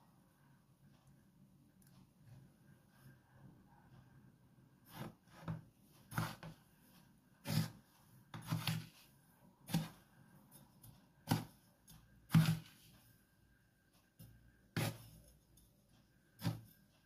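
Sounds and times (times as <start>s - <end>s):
spoon scraping breadcrumbs in bowl: 4.9s - 12.9s, 14.7s - 15.7s.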